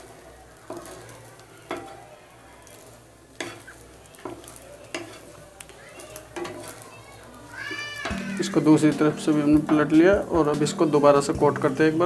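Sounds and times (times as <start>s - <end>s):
bread sizzling in pan: 0.0s - 12.0s
wooden spatula scraping pan: 0.7s - 2.0s, 2.6s - 5.5s, 6.2s - 7.0s, 7.6s - 12.0s.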